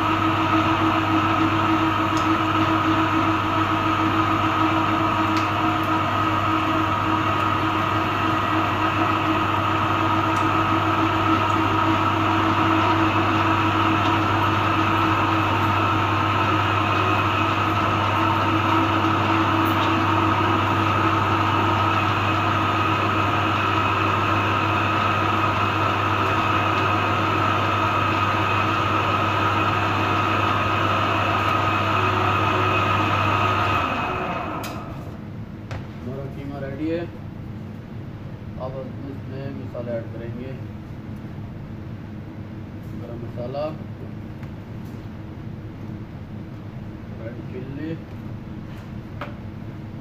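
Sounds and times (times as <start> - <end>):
electric meat grinder running: 0.0 - 35.0.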